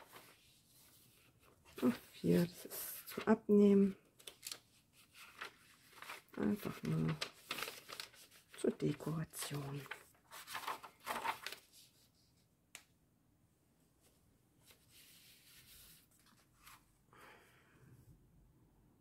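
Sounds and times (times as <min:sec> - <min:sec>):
paper page rustling: 0:00.0 - 0:12.3, 0:14.6 - 0:16.9.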